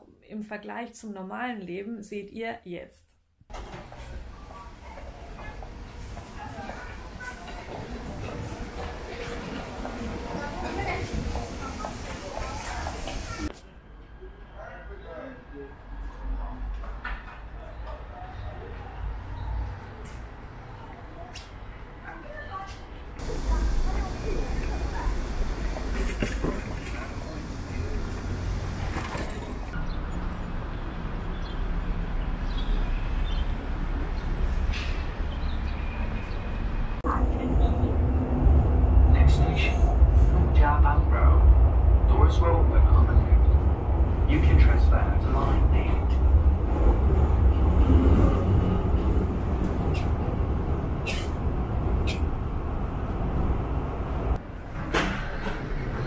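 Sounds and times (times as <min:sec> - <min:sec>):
low traffic rumble: 0:03.5 - 0:56.0.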